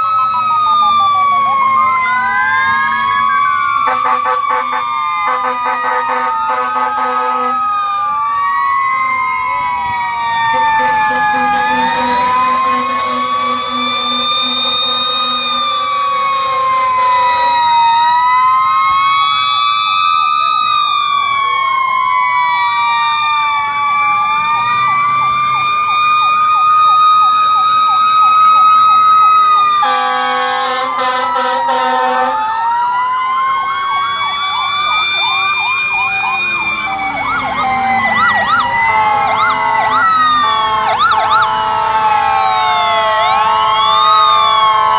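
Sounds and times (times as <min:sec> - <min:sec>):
fire engine sirens wailing: 0:00.0 - 0:44.9
loud steady horn blast: 0:03.8 - 0:07.6, 0:10.5 - 0:16.0, 0:29.8 - 0:32.4.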